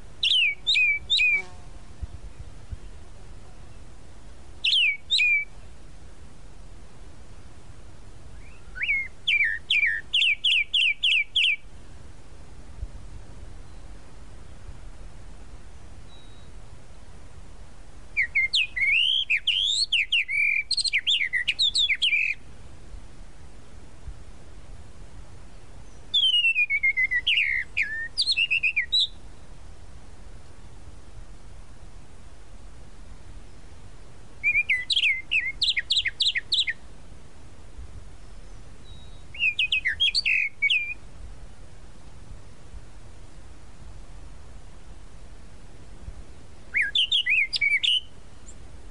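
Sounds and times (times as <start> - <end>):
background hiss: 0.0 - 48.9
mockingbird singing whistled notes: 0.2 - 1.5, 4.6 - 5.5, 8.3 - 11.6, 16.1 - 16.6, 18.2 - 22.4, 25.8 - 29.2, 34.4 - 36.8, 38.8 - 41.0, 46.7 - 48.6.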